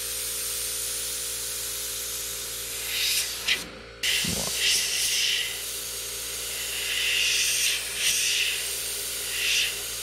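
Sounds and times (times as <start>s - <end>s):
airbrush hissing: 2.8s - 10.0s.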